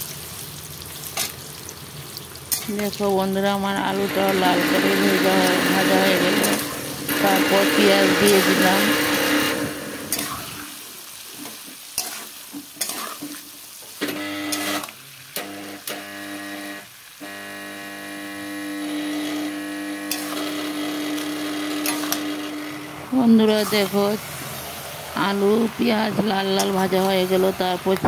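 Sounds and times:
oil sizzling: 0.0 - 28.0
metal spatula scraping pan: 11.4 - 13.4.

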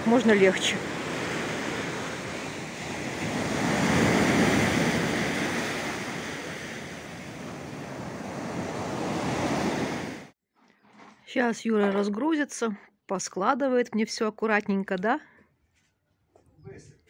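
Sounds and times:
surf washing on sandy beach: 0.0 - 10.3.

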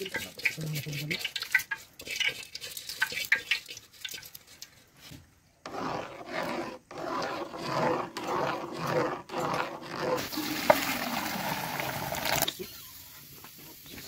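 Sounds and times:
food clicks and scrapes: 0.0 - 10.3.

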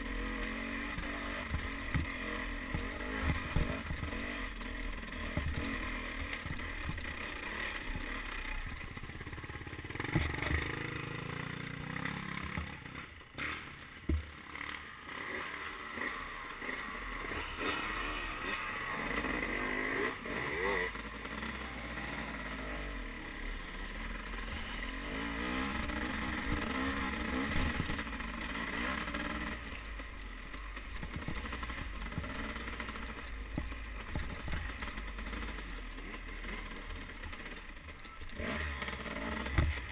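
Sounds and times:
dirt bike engine: 0.0 - 39.9
knocks and clatter from bumps: 0.9 - 4.4, 5.2 - 7.4, 10.0 - 11.0, 12.5 - 14.4, 30.8 - 35.5, 38.9 - 39.9.

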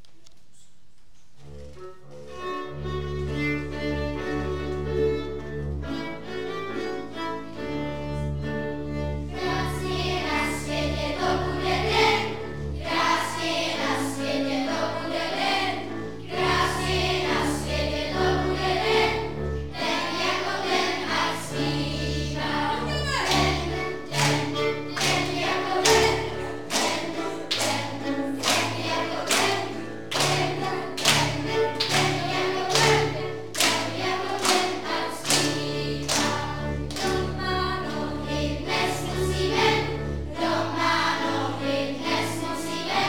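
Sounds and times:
violin: 1.6 - 43.0
children's choir singing: 3.6 - 43.0.

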